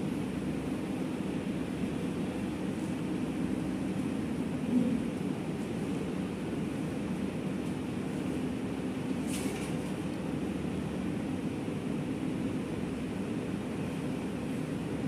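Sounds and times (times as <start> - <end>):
low rumbling room noise: 0.0 - 15.0.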